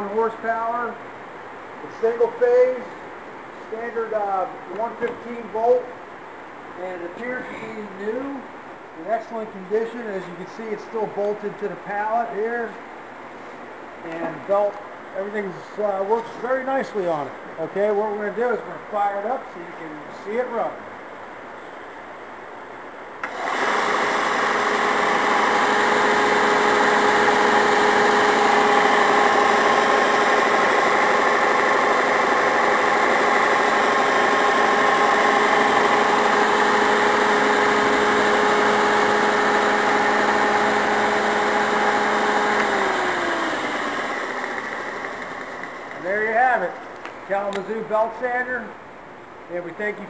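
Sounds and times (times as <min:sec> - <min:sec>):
belt sander running: 0:23.2 - 0:46.4.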